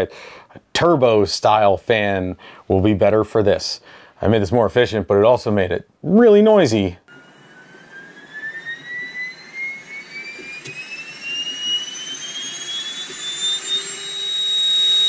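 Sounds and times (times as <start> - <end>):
cooling fan whine rising: 7.1 - 15.0.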